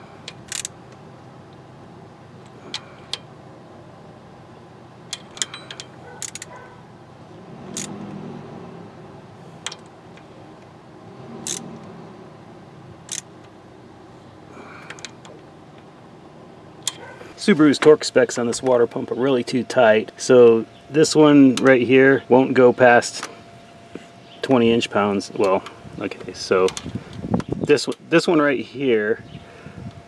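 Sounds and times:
socket wrench clicking: 0.3 - 0.8, 5.1 - 6.6, 7.7 - 8.0, 11.5 - 11.7, 13.0 - 13.5.

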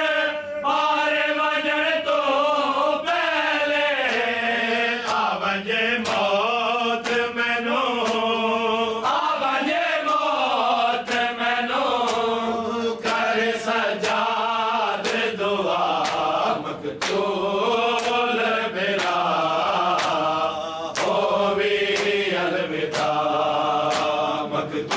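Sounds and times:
men chanting in chorus: 0.0 - 24.9
sharp slaps of chest-beating: 5.0 - 5.4, 6.0 - 7.4, 8.0 - 8.4, 12.0 - 12.4, 14.0 - 14.4, 15.0 - 17.3, 17.9 - 18.4, 19.0 - 24.9.

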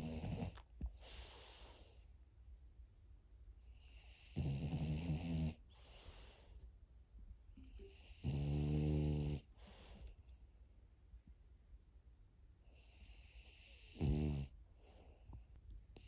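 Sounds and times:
dog snoring: 0.0 - 1.8, 3.8 - 6.1, 7.9 - 9.8, 12.8 - 14.6
dog breathing softly: 0.0 - 2.1, 5.7 - 6.6.

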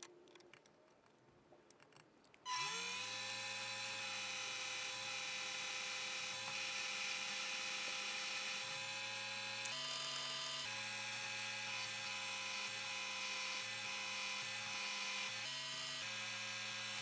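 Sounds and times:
drill press motor running: 2.5 - 17.0.

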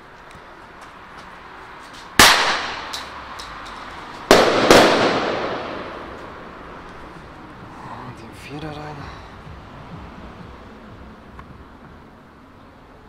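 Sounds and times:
pistol bangs with echo: 4.3 - 6.2.

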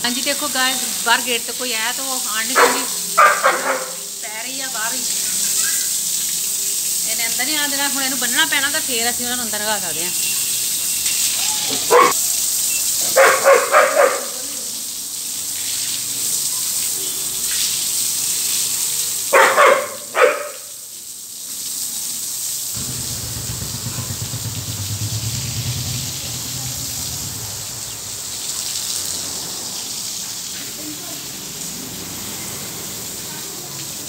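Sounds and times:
dog barking: 2.5 - 4.1, 11.5 - 12.2, 13.0 - 14.7, 19.3 - 20.8
steady hiss: 22.4 - 33.1
low hum: 22.8 - 28.2.

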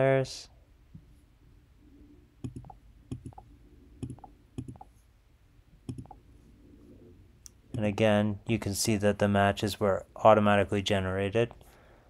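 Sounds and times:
faint room noise: 0.0 - 12.0
computer mouse button clicking: 2.4 - 3.4, 5.9 - 6.2.

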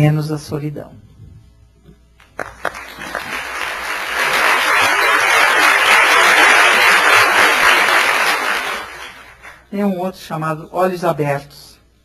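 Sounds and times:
audience applauding: 2.3 - 9.6.

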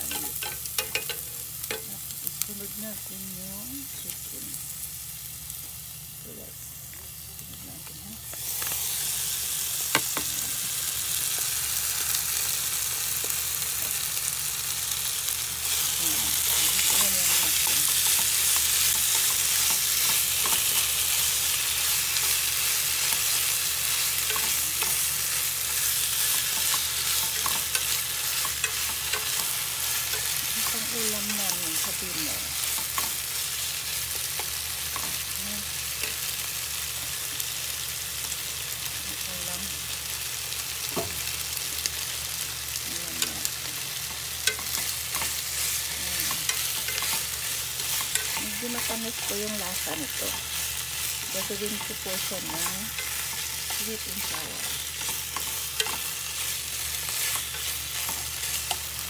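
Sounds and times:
chopsticks tapping pan: 0.0 - 1.9, 15.6 - 35.3, 43.1 - 59.0
chicken sizzling in hot oil: 0.0 - 59.0.

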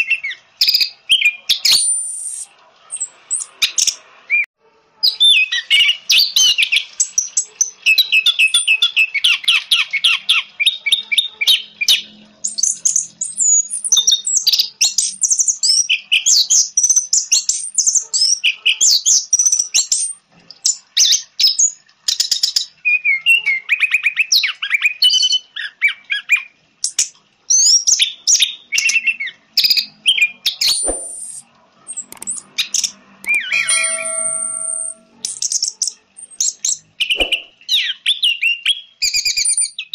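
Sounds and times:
thrush singing whistles and trills: 0.0 - 10.9, 11.8 - 20.8, 26.8 - 39.9
sharp click: 30.7 - 35.1, 37.2 - 37.5
short chime of steady tones: 33.2 - 35.4.

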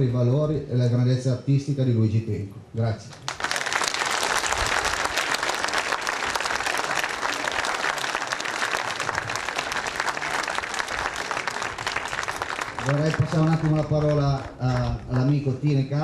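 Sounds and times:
crowd applauding: 3.3 - 15.8.

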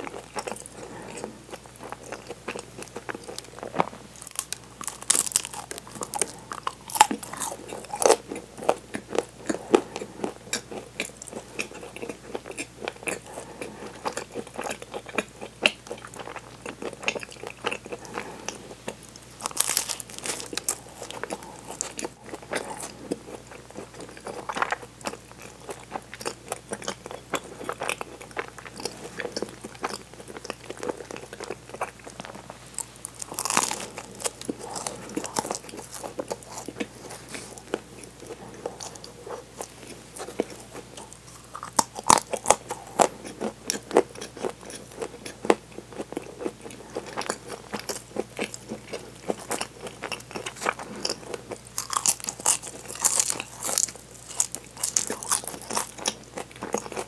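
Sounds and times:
crunchy pastry chewing: 0.0 - 57.0.

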